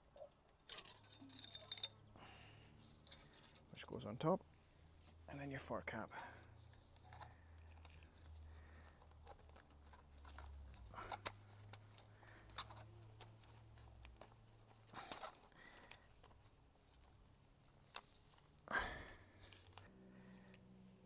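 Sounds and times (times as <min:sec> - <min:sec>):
faint clicks and rustling: 0:06.4 - 0:20.7.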